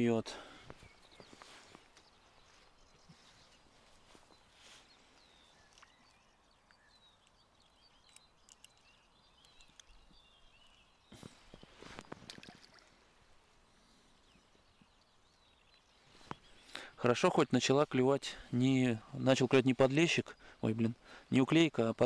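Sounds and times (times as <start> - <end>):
small birds chirping faintly: 0.0 - 22.0.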